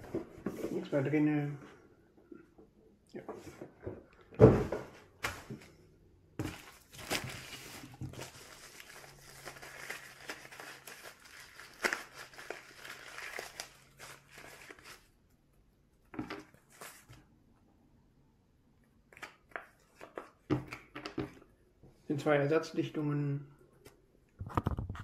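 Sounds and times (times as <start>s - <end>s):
plastic wrapping crinkling: 6.4s - 15.2s.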